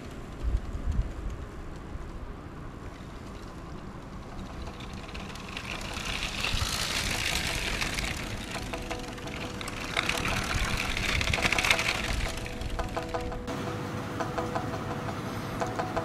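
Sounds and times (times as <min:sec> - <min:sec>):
toy train running on track: 0:02.9 - 0:13.5.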